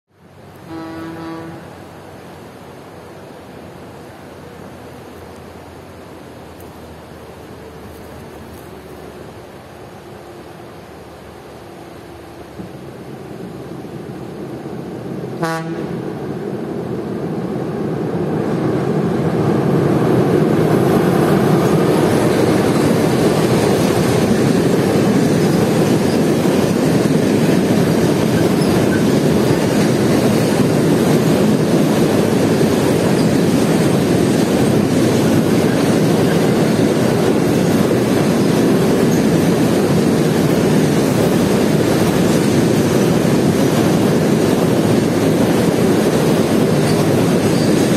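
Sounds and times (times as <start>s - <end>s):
freight train rumbling over bridge: 0.1s - 47.9s
train horn toot: 0.6s - 1.8s, 15.4s - 16.0s.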